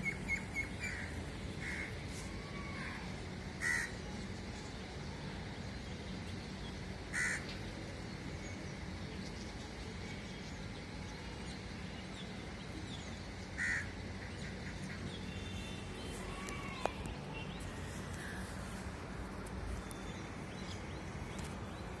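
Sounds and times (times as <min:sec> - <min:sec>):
steady low hum: 0:00.0 - 0:22.0
crows cawing: 0:00.8 - 0:02.0, 0:03.6 - 0:04.0, 0:07.1 - 0:07.5, 0:13.6 - 0:15.0.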